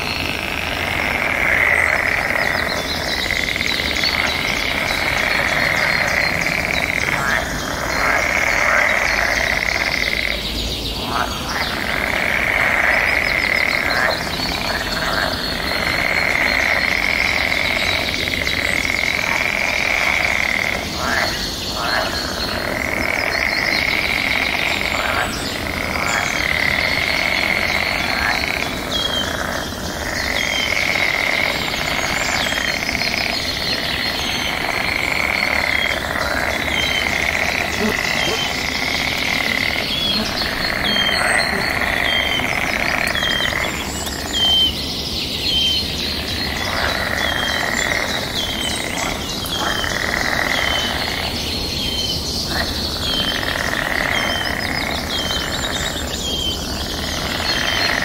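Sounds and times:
trilling animal chorus: 0:00.0 - 0:44.7.

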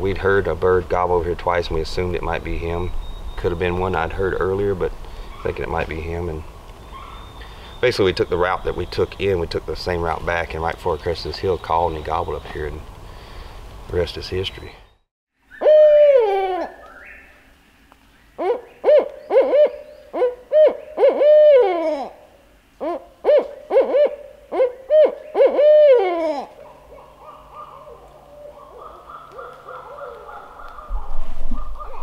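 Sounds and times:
owl hooting: 0:05.1 - 0:05.8, 0:06.8 - 0:09.4, 0:15.5 - 0:17.4, 0:18.3 - 0:32.0.

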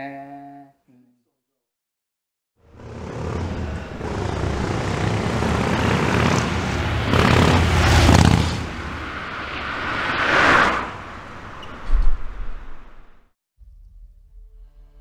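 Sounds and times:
motorcycle passing by: 0:02.6 - 0:11.8.

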